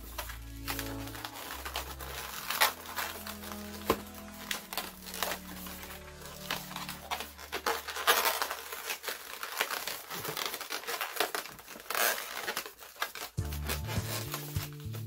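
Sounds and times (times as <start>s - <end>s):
background music: 0.0s - 8.8s, 13.4s - 15.0s
balloon rubbing against hands: 13.4s - 15.0s.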